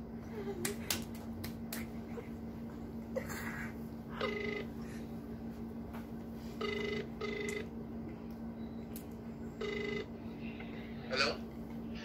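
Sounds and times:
steady low hum: 0.0 - 12.0
phone ringback tone beeps: 4.2 - 4.7, 6.6 - 7.7, 9.6 - 10.1.

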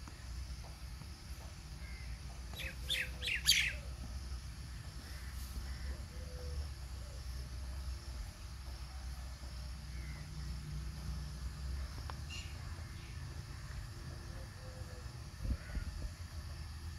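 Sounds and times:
small bird chirping: 1.8 - 4.0.

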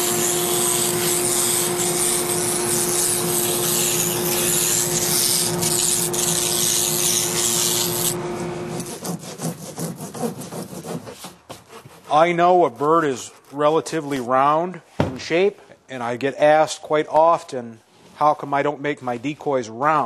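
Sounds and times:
power tool grinding: 0.0 - 11.0.

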